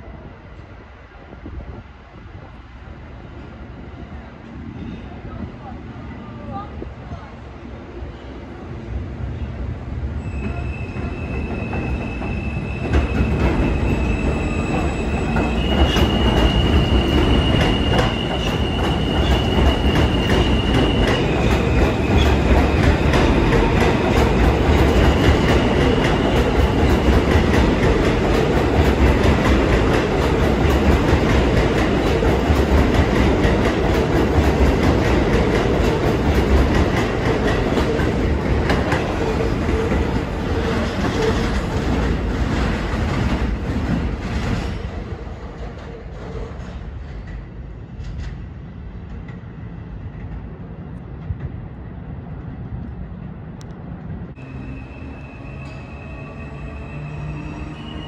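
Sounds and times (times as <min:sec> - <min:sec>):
low train rumble: 0:00.0 - 0:58.0
train wheels squealing: 0:10.2 - 0:27.1, 0:54.4 - 0:58.0.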